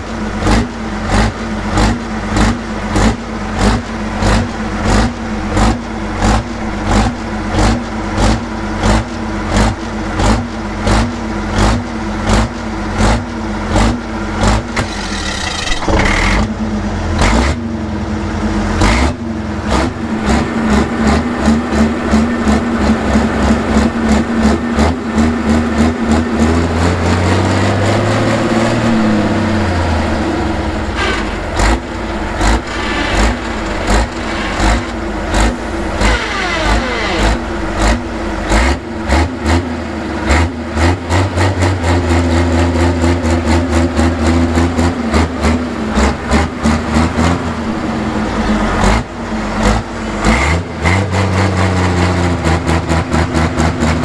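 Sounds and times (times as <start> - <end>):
diesel engine idling roughly: 0.0 - 27.8, 29.0 - 54.0.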